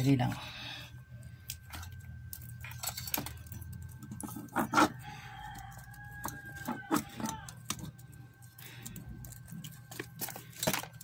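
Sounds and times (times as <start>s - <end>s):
rooster crowing: 4.4s - 7.9s.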